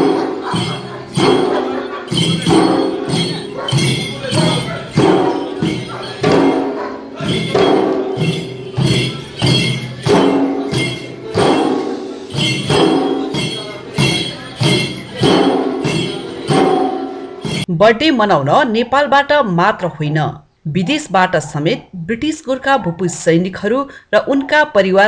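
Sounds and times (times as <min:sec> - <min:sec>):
drums beaten in dance rhythm: 0:00.0 - 0:17.7
metallic clinking: 0:00.0 - 0:17.7.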